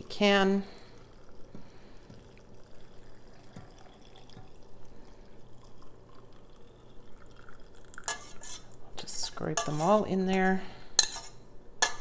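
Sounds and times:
liquid trickling into a glass jar: 0.0s - 8.8s.

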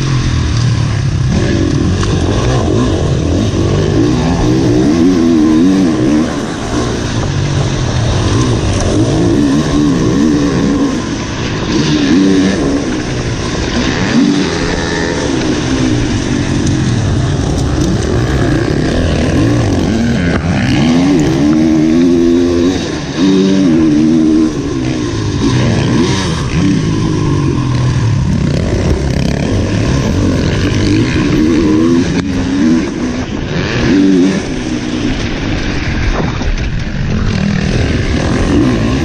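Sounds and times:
dirt bike engine revving: 0.0s - 39.0s.

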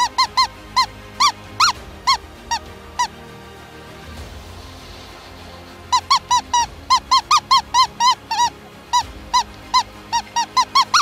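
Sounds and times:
predator call squeaky notes: 5.9s - 11.0s.

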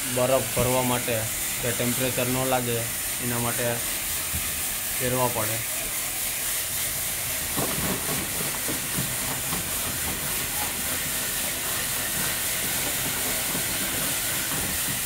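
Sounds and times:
ice rushing down plastic chute: 7.3s - 15.0s.

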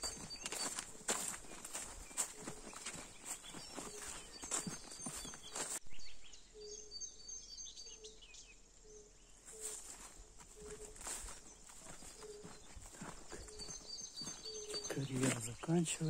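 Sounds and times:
footsteps on dirt: 0.0s - 5.8s, 9.5s - 16.0s
high bird chirps: 0.0s - 16.0s.

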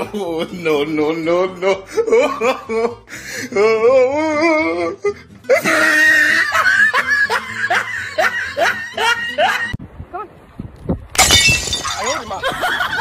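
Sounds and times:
music: 0.0s - 9.8s
comedy laughter effects: 5.5s - 9.8s.

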